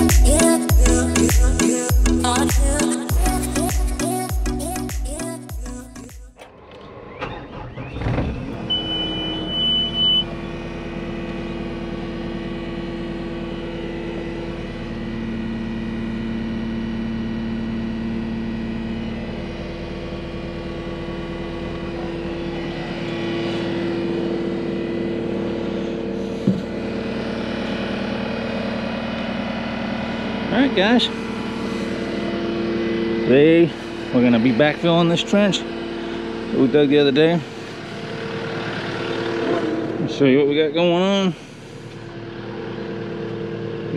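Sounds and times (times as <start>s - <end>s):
diesel engine starting and idling: 0.0s - 43.9s
electronic warning beep: 7.2s - 10.6s.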